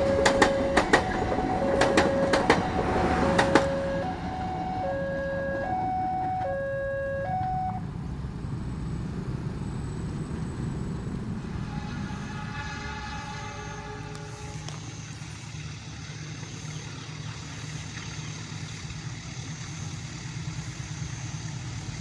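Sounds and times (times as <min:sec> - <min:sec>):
train wheels clacking over rail joints: 0:00.0 - 0:04.1
level-crossing alarm two-tone signal: 0:00.0 - 0:07.8.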